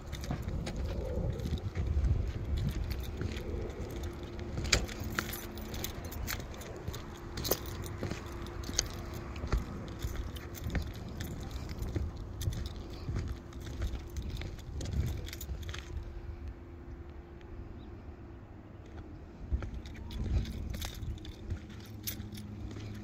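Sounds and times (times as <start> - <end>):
footsteps on shingle roof: 0.0 - 16.0, 18.9 - 23.0
light metallic jangling: 0.0 - 16.0, 19.6 - 23.0
low rumble: 0.0 - 17.8.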